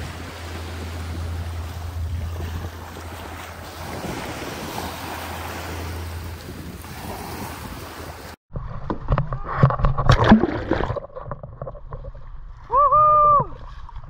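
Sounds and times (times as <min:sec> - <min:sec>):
small waves on sandy shore: 0:00.0 - 0:08.4
wind buffeting microphone: 0:00.0 - 0:08.4.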